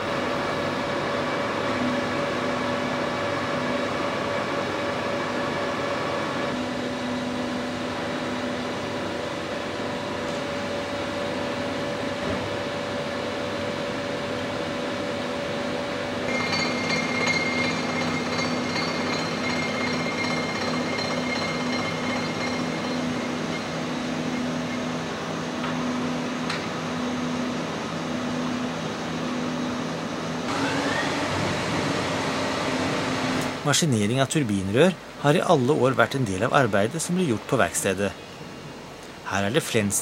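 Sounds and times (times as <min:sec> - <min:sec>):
machinery humming: 0:16.1 - 0:28.4
high machine whine: 0:16.2 - 0:26.5.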